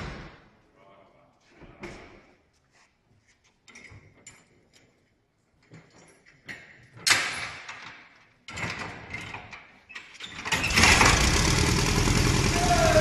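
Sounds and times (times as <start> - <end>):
small engine running: 10.7 - 13.0.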